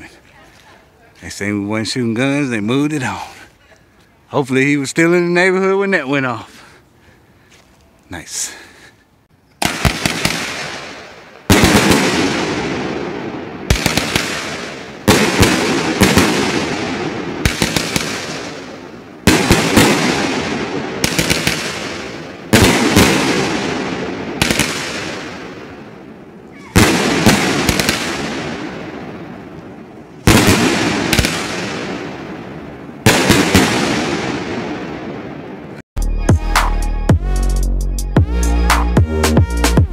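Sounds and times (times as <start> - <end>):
firework cake bangs echoing: 9.6 - 35.8.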